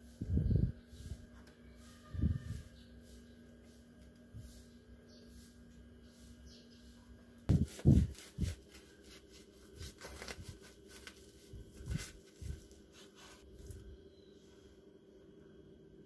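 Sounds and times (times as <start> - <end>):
plastic cling wrap crinkling: 7.7 - 13.9.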